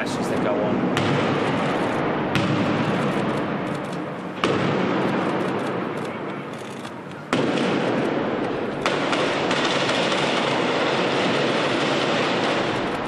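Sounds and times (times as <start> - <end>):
gunfire: 0.9 - 13.0
stun grenade blasts: 7.3 - 13.0.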